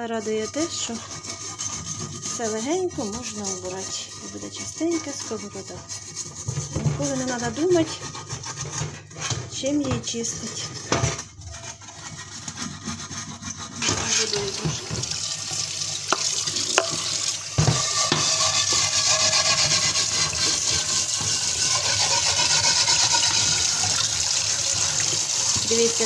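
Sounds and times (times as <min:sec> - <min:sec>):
scrubbing frying pan: 0:00.0 - 0:26.0
tap water running onto pan: 0:13.8 - 0:26.0.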